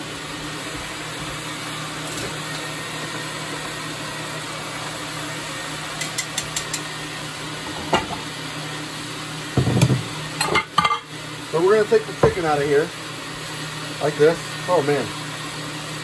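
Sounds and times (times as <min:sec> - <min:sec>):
blender motor humming: 0:00.0 - 0:16.0
knock: 0:09.6 - 0:10.1.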